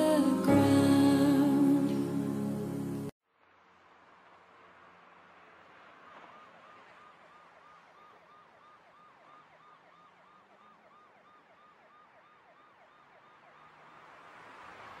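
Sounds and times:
faint warbling siren tone: 0:06.0 - 0:14.3.

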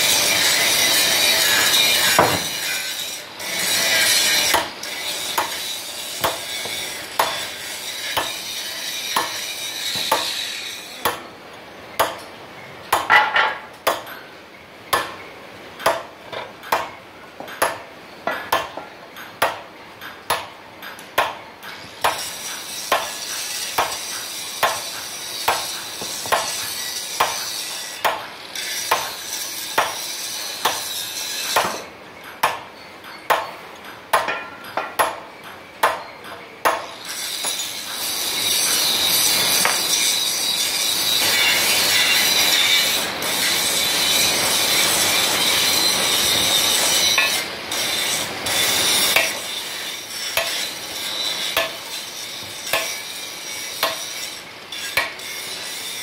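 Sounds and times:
hammer striking metal: 0:05.4 - 0:05.6, 0:06.2 - 0:07.5, 0:08.1 - 0:08.4, 0:09.1 - 0:10.4, 0:14.9 - 0:15.2, 0:15.8 - 0:29.2, 0:29.8 - 0:30.0, 0:31.5 - 0:37.6, 0:47.1 - 0:47.4, 0:49.0 - 0:49.5, 0:50.4 - 0:50.7, 0:51.5 - 0:52.0, 0:52.6 - 0:53.1, 0:53.8 - 0:54.2, 0:54.8 - 0:55.3.

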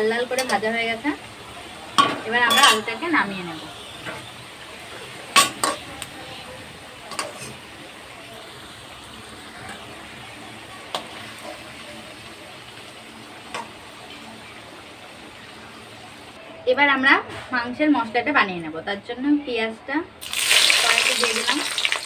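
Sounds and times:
potatoes sizzling in hot oil: 0:00.0 - 0:16.4, 0:20.2 - 0:22.0
metal ladle clinking against pan: 0:00.4 - 0:00.6, 0:02.0 - 0:03.0.

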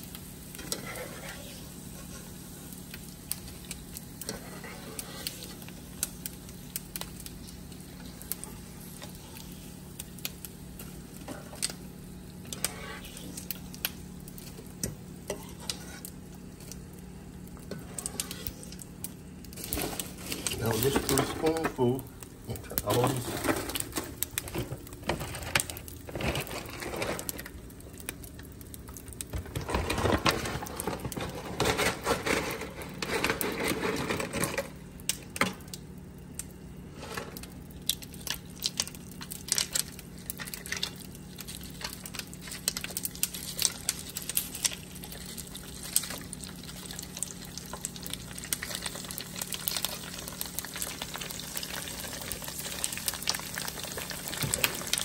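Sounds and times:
steady low hum: 0:00.0 - 0:53.4
crackling in hot oil: 0:00.0 - 0:55.0.

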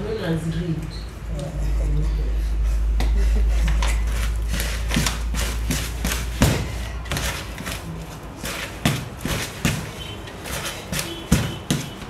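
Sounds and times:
spoon beating batter in bowl: 0:03.8 - 0:12.0.

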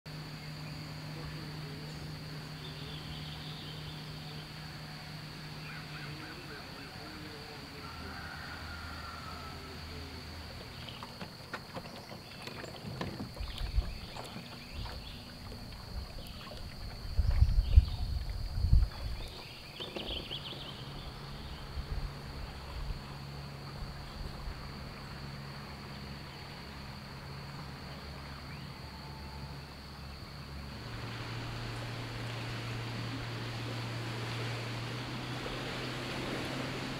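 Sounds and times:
outboard motor droning: 0:00.1 - 0:36.9
wind rumbling on microphone: 0:12.0 - 0:25.2.

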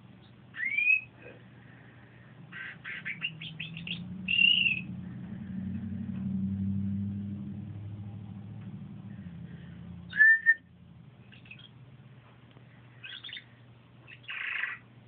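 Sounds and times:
canary singing: 0:00.0 - 0:01.2, 0:02.2 - 0:05.4, 0:10.1 - 0:11.8, 0:13.0 - 0:15.0.

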